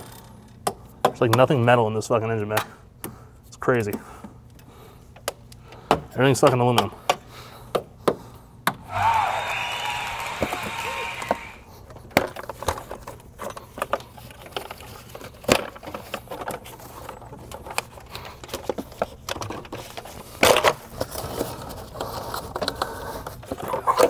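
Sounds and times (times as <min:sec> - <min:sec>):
plastic parts clicking and rustling: 0:12.0 - 0:24.0.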